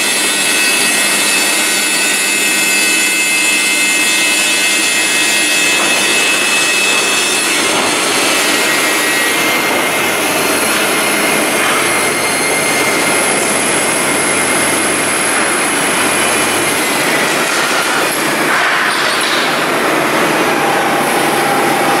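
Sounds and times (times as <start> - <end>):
production line machinery running: 0.0 - 22.0
faint high whines: 20.0 - 22.0.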